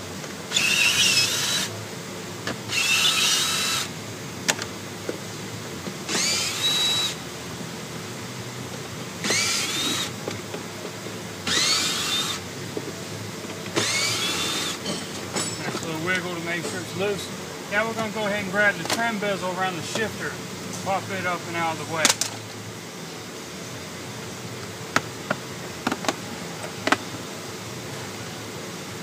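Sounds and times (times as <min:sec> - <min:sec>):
cordless drill whine: 0:00.5 - 0:01.8, 0:02.7 - 0:04.0, 0:06.0 - 0:07.2, 0:09.2 - 0:10.2, 0:11.4 - 0:12.4, 0:13.7 - 0:15.0.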